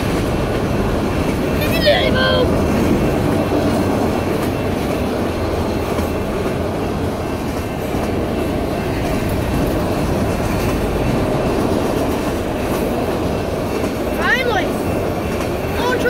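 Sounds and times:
freight train wheels on rails: 0.0 - 16.0.

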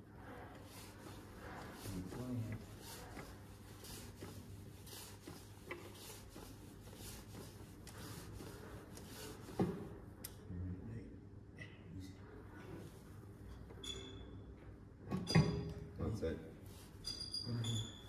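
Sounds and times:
faint hand rubbing strokes: 0.0 - 10.1, 16.6 - 17.0.

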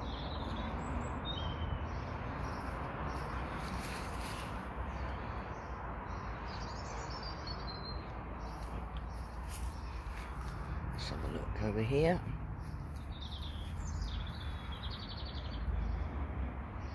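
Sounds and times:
birds chirping: 0.0 - 16.2.

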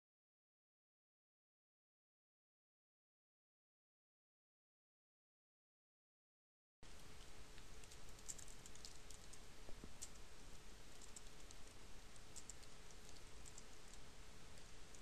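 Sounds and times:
faint steady hum: 6.8 - 15.0.

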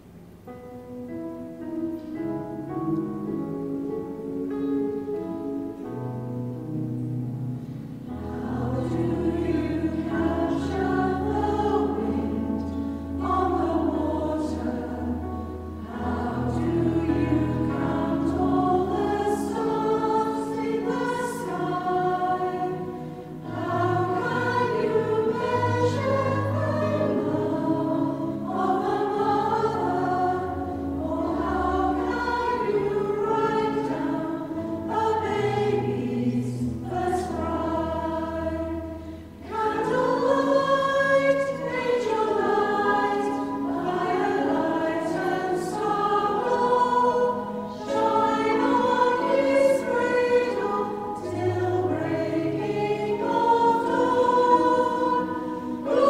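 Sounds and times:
choir singing a carol: 7.6 - 56.0.

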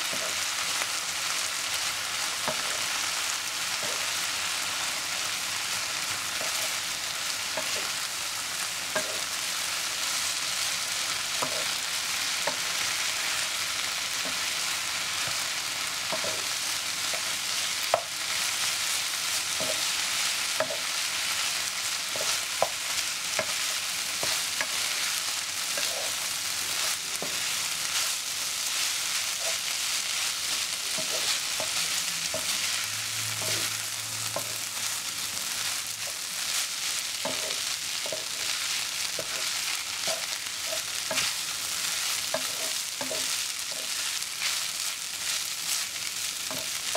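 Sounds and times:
noodles sizzling in a pan: 0.0 - 46.9
spatula scraping a pan: 8.9 - 10.0, 11.1 - 13.5, 14.2 - 46.9.

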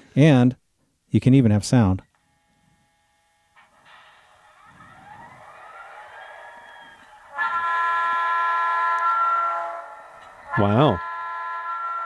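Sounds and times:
loud air horn blast: 7.1 - 12.0.

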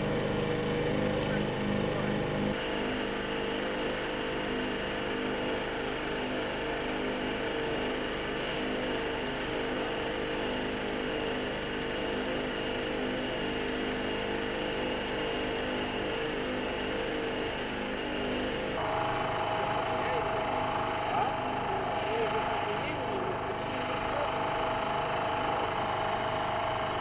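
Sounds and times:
small engine running: 0.0 - 27.0
high-pressure spray jet hissing: 13.3 - 27.0.

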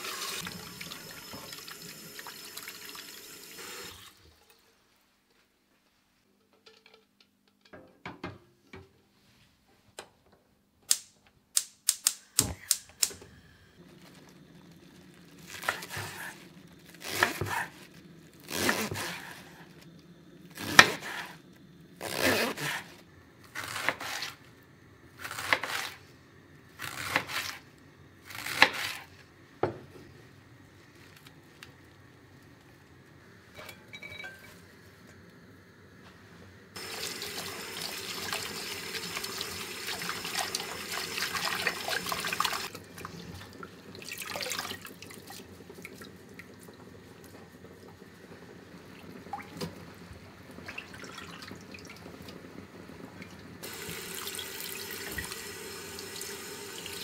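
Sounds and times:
tap water running into bowl: 0.1 - 4.1, 36.8 - 48.1, 53.2 - 57.0
knife slicing cabbage on board: 17.0 - 17.7, 23.5 - 24.4, 25.2 - 26.0, 26.8 - 27.6, 28.3 - 29.1.

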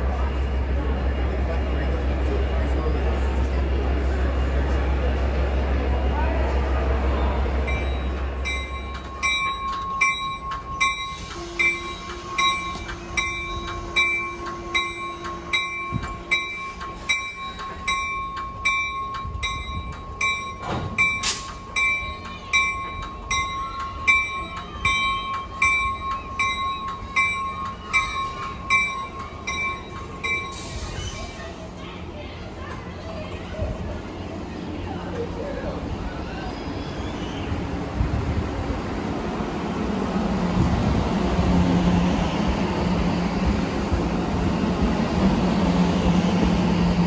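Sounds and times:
moving train: 0.0 - 47.0
train bell ringing: 6.6 - 31.6.

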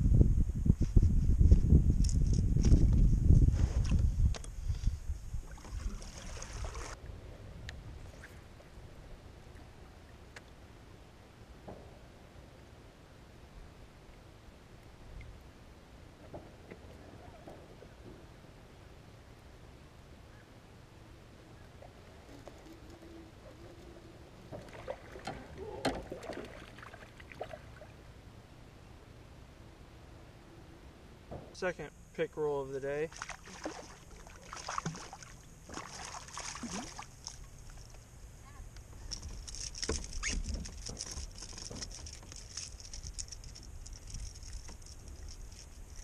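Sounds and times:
fish thrashing and splashing: 33.1 - 37.9
fish thrashing on line: 39.1 - 46.0.

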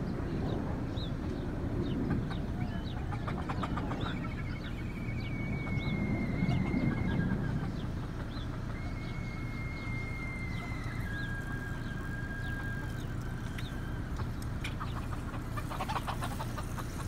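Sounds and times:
chickens chirping and clucking: 0.0 - 17.0
steady low rumble: 0.0 - 17.0
long high whistle: 4.8 - 7.0, 8.8 - 14.1.

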